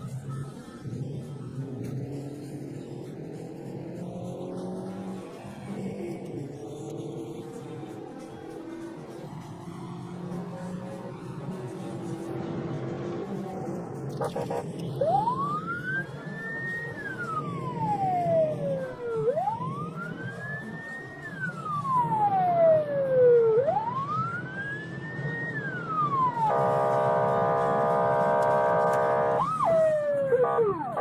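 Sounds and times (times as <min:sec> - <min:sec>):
police car siren wailing: 0:14.2 - 0:31.0.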